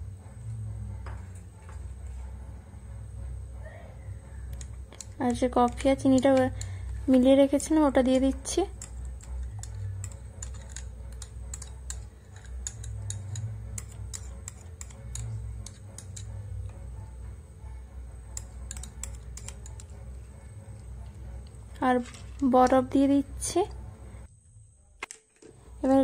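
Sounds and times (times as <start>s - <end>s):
low steady hum: 0.0s - 26.0s
metal spoon scraping glass bowl: 4.5s - 17.2s, 17.8s - 22.9s.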